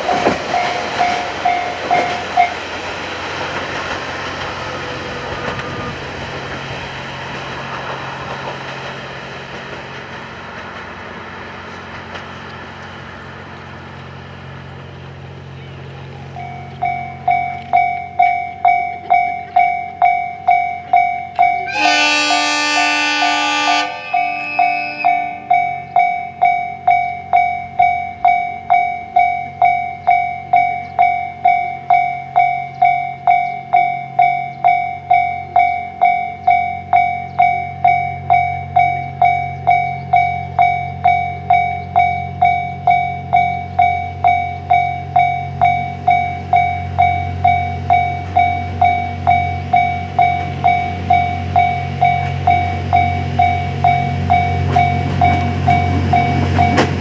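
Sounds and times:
level-crossing alarm bell ringing: 0.0 - 2.6, 16.3 - 57.0
train rumble: 0.0 - 57.0
train horn blast: 21.6 - 25.6.

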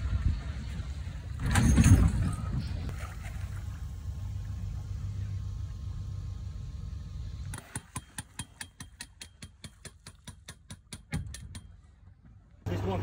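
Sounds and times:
low rumble of sailboat through water: 0.0 - 7.6.

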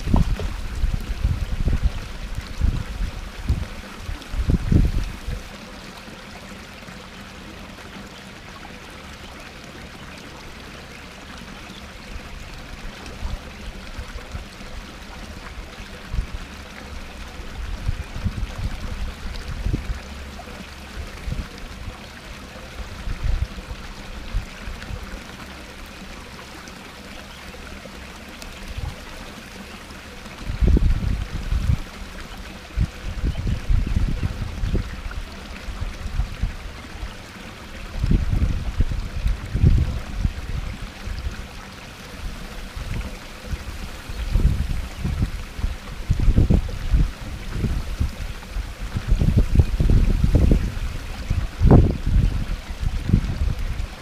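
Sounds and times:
wind rumble on microphone: 0.0 - 5.6, 12.8 - 25.2, 30.3 - 54.0
waterfall splashing over rocks: 0.0 - 9.0, 9.7 - 54.0.

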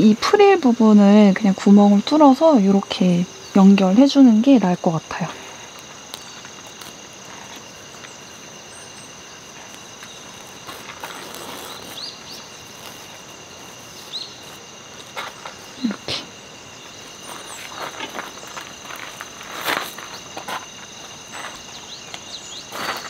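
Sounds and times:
insects trilling: 0.0 - 23.0
bird chirps: 11.6 - 13.0, 13.9 - 14.6.

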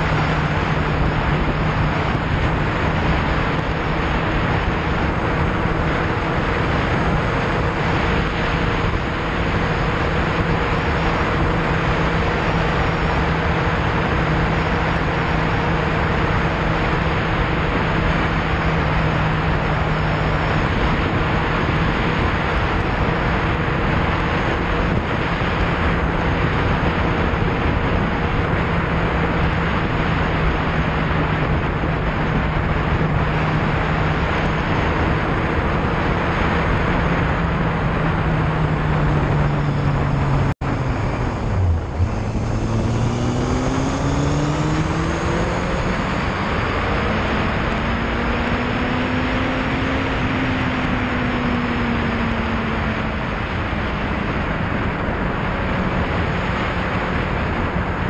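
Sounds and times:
motorcycle engine revving: 0.0 - 58.0
wind rush on microphone: 0.0 - 58.0.

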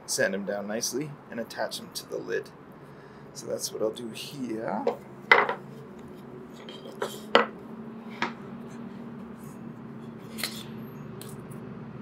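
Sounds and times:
steady low hum: 0.0 - 12.0
wooden pieces knocking on a workbench: 4.9 - 5.6, 6.6 - 7.6.

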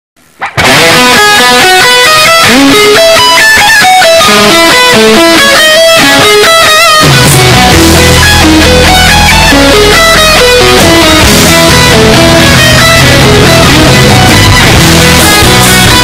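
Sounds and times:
instrumental music with fast melody: 0.4 - 16.0.

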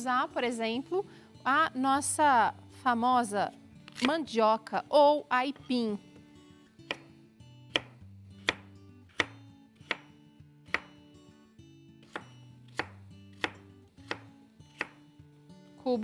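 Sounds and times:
knife chopping on wooden board: 6.9 - 7.1, 7.7 - 11.0, 12.0 - 15.0.

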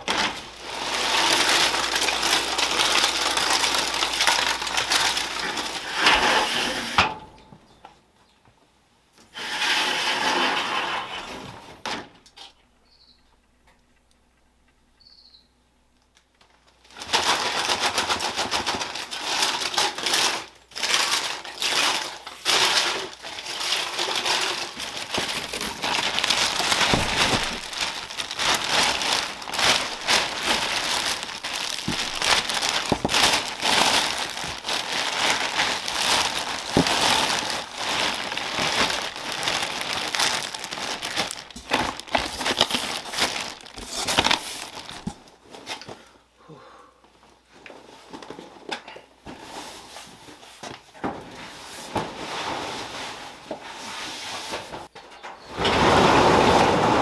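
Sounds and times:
plastic bag crinkling: 0.0 - 6.3, 16.4 - 45.5.

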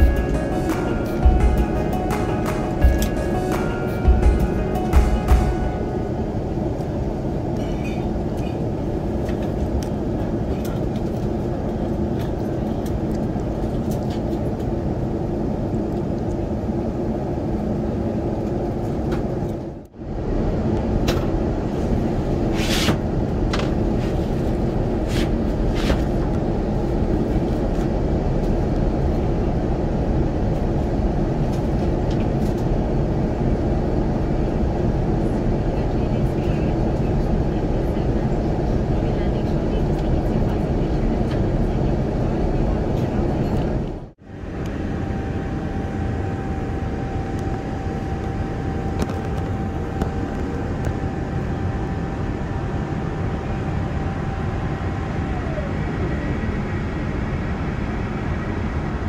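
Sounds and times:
airliner cabin noise: 0.0 - 59.0.

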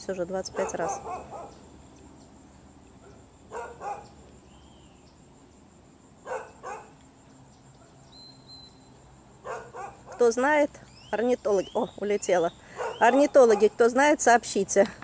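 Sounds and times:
dog barking: 0.5 - 1.6, 3.0 - 4.2, 6.2 - 6.9, 9.4 - 10.3, 12.8 - 13.8.

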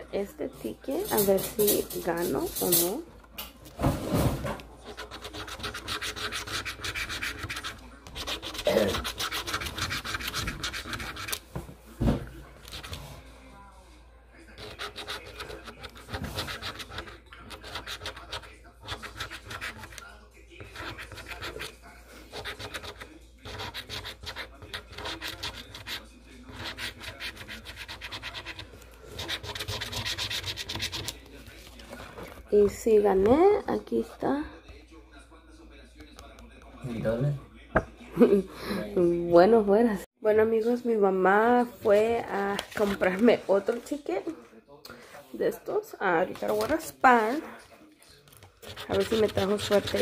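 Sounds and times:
scratch-off ticket being scratched: 1.0 - 3.0, 4.8 - 11.5, 12.6 - 13.0, 14.5 - 32.3, 42.4 - 43.9, 48.3 - 50.0.

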